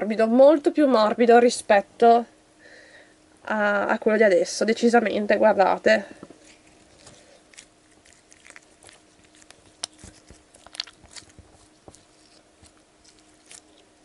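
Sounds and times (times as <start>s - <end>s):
slime squelching between hands: 6.4s - 14.0s.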